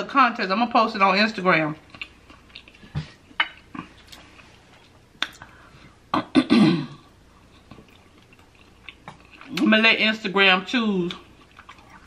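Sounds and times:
lip smacks and clicks: 0:05.2 - 0:05.5.

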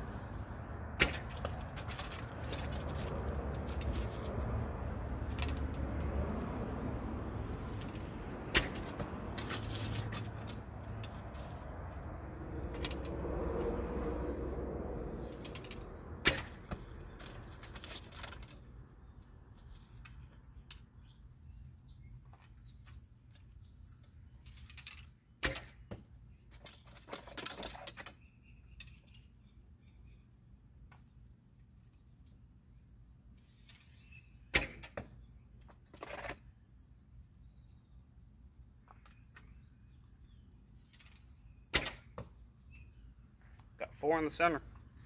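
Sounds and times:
arrows clicking and rattling: 0:01.0 - 0:06.1, 0:07.5 - 0:12.0, 0:12.7 - 0:13.2, 0:15.1 - 0:18.7, 0:24.4 - 0:28.2, 0:33.4 - 0:36.4, 0:40.8 - 0:42.3.

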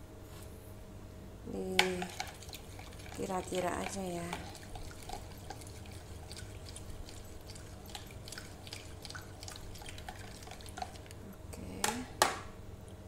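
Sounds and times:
spoon stirring liquid in bowl: 0:01.8 - 0:12.0.

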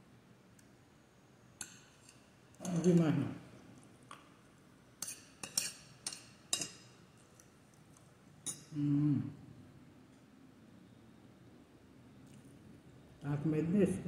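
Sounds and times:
fork clinking against glass bowl: 0:05.0 - 0:07.0, 0:08.4 - 0:08.7
person humming: 0:08.8 - 0:09.4.

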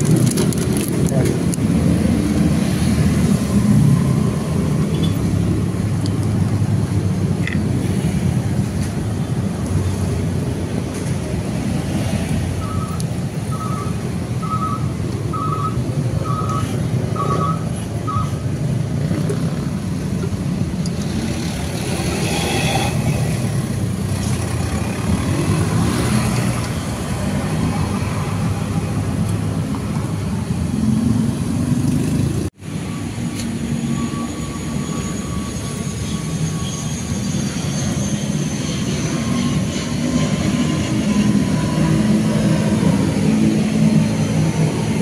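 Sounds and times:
low rumble of motor vehicles: 0:00.0 - 0:45.0
short electronic beeps: 0:12.6 - 0:18.4.

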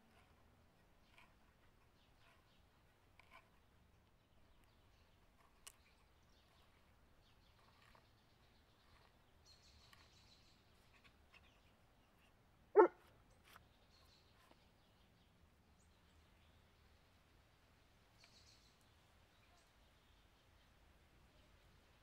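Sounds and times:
dog bark: 0:12.8 - 0:13.1.

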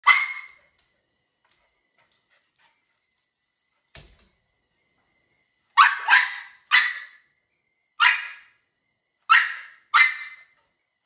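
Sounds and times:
dog barking high-pitched: 0:00.0 - 0:00.6, 0:05.8 - 0:07.2, 0:08.0 - 0:08.5, 0:09.3 - 0:10.5.

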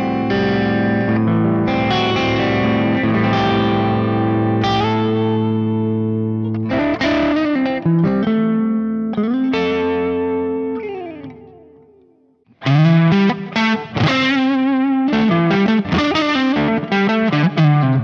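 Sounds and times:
overdriven electric guitar: 0:00.0 - 0:18.0.

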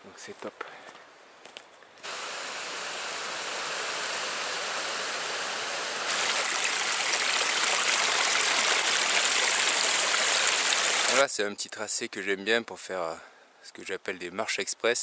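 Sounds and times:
stream rushing: 0:06.0 - 0:11.2.

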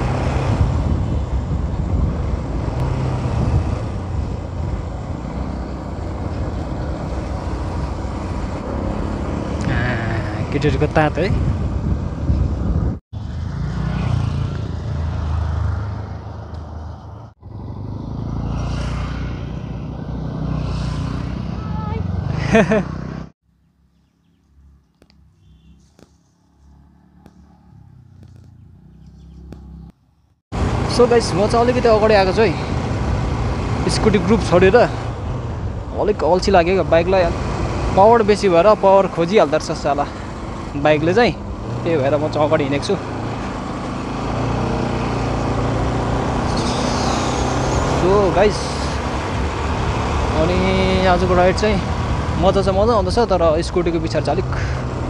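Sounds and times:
road and wind noise: 0:00.0 - 0:55.0
distant scooter engine: 0:23.9 - 0:29.9, 0:36.6 - 0:53.1
motorcycle engine running: 0:23.9 - 0:29.9.

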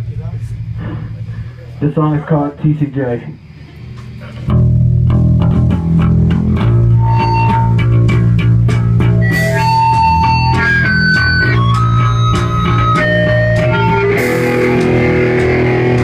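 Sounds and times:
high held guitar notes: 0:03.8 - 0:16.0
live punk band playing: 0:04.4 - 0:16.0.

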